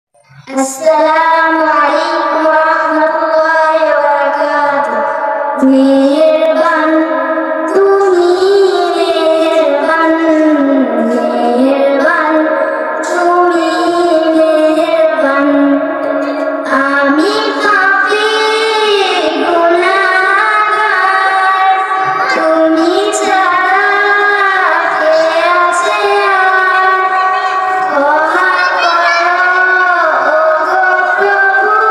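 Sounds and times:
girl singing into microphone: 0:00.2 - 0:31.9.

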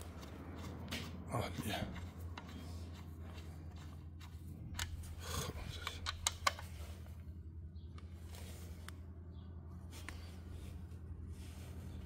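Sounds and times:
steady low hum: 0:00.0 - 0:12.0
metal bolt clicks and scrapes: 0:01.9 - 0:07.0.

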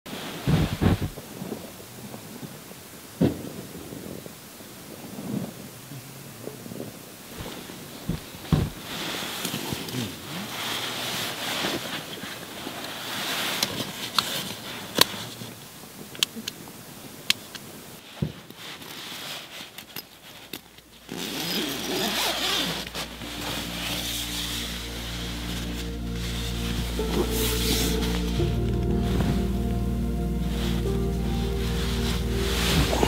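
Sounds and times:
fabric rustling and scraping: 0:00.1 - 0:01.2, 0:07.3 - 0:15.6, 0:18.0 - 0:33.0
soft music: 0:22.0 - 0:33.0.

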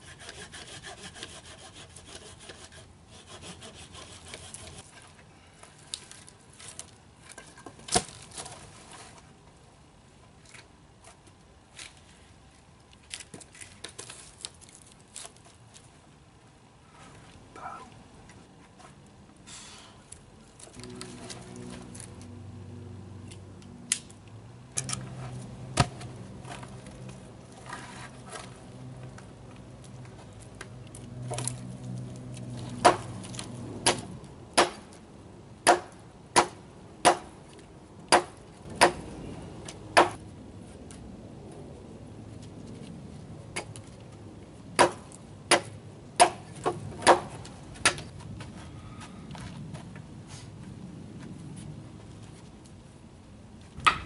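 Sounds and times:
hatchet chopping wood: 0:25.7 - 0:26.1, 0:32.8 - 0:33.2, 0:33.8 - 0:35.0, 0:35.6 - 0:37.4, 0:38.1 - 0:39.0, 0:40.0 - 0:40.2, 0:44.8 - 0:48.1, 0:53.8 - 0:54.0.

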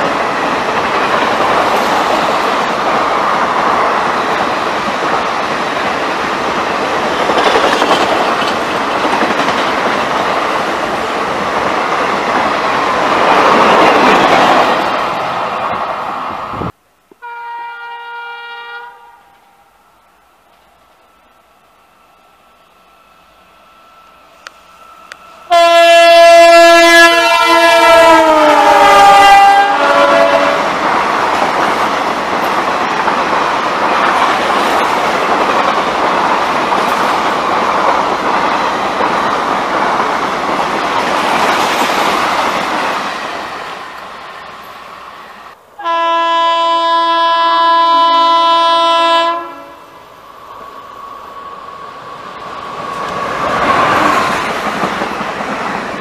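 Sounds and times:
train rumble: 0:00.0 - 0:17.2, 0:23.0 - 0:46.0, 0:47.8 - 0:56.0
train coaches rushing by: 0:00.0 - 0:17.9, 0:19.2 - 0:56.0
train horn blaring: 0:17.2 - 0:19.9, 0:25.4 - 0:30.7, 0:45.8 - 0:49.9.

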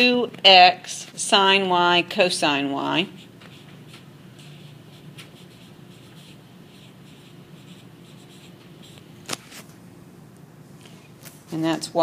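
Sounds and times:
stylus scratching on screen: 0:03.0 - 0:09.1.

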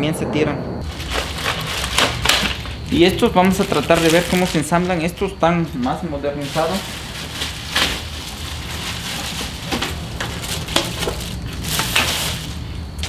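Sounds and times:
rustling and crinkling: 0:00.8 - 0:05.1, 0:05.8 - 0:13.0.

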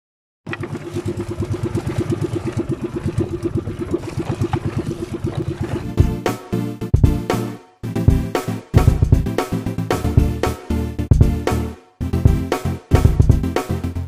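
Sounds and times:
small boat engine putting: 0:00.4 - 0:13.4
music with drum hits: 0:05.9 - 0:14.0.

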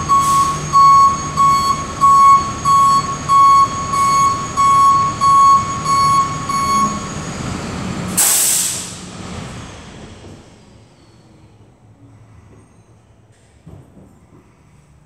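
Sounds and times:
reversing alarm beeping: 0:00.0 - 0:07.6
hiss of released air: 0:08.2 - 0:09.1.

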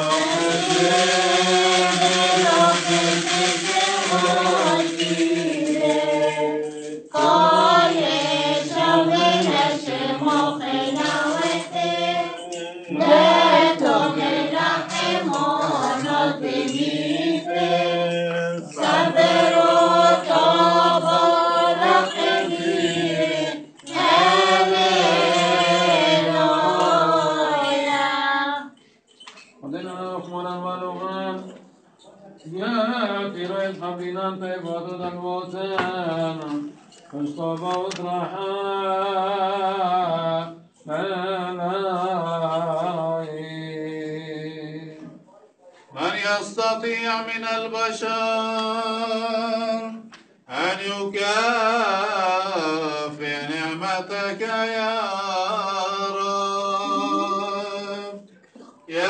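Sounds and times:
group of voices chanting: 0:00.0 - 0:28.6.

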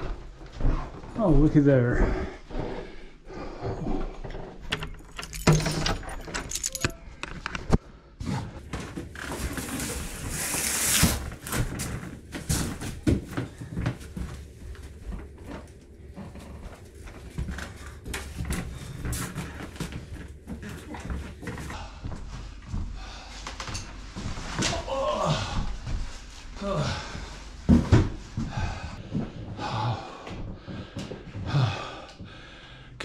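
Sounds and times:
door being unlocked and opened: 0:04.7 - 0:07.4
keys jangling: 0:04.7 - 0:07.5.

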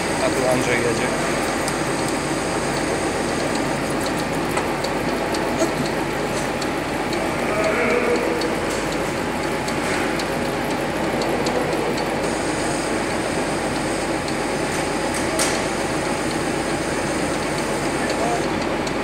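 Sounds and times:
metal lathe running: 0:00.0 - 0:19.0
sharp click: 0:15.1 - 0:15.7.

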